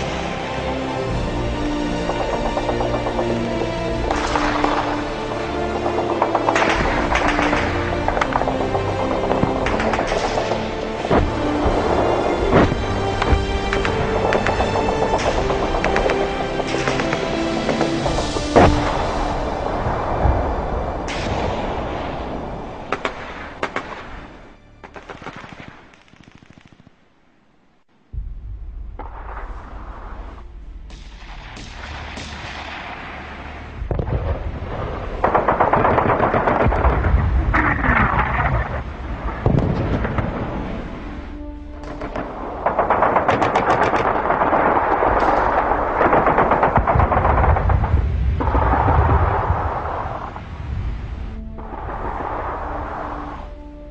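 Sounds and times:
rumbling battle din: 1.8 - 24.1, 28.2 - 53.3
machine-gun fire: 4.0 - 18.9, 24.8 - 27.0, 35.0 - 38.4, 41.9 - 49.8.

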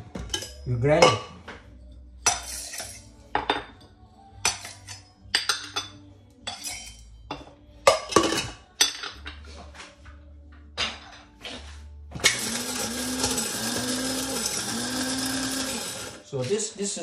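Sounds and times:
spices clinking and rattling in grinder: 12.2 - 16.3.

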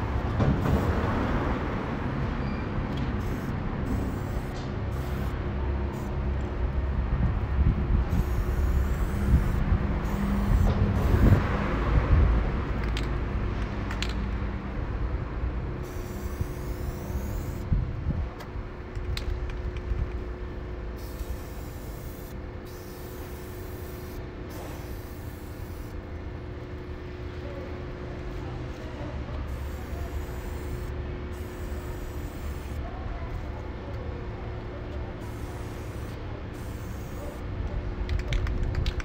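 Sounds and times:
heavy vehicle engine rumble: 0.0 - 16.2.

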